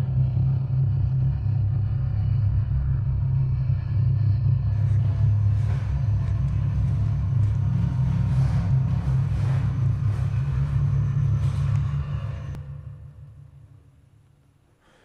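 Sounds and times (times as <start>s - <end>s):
loud low rumble: 0.0s - 13.8s
faint footsteps: 4.6s - 12.6s.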